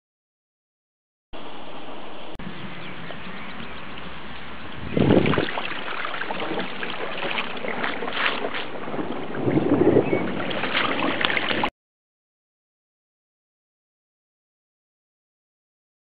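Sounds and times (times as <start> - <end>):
wind buffeting microphone: 2.4 - 11.7.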